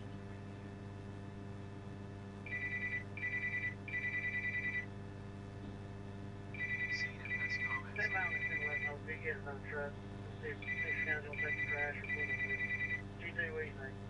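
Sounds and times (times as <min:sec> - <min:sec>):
electrical hum: 0:00.0 - 0:14.0
electronic telephone ring: 0:02.5 - 0:04.9, 0:06.6 - 0:09.0, 0:10.6 - 0:13.0.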